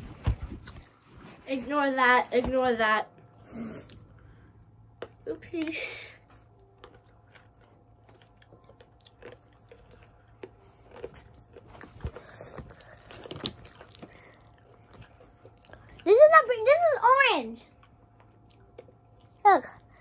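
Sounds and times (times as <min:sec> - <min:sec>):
person chewing crunchy candy: 0:03.2 - 0:16.4, 0:17.6 - 0:20.0.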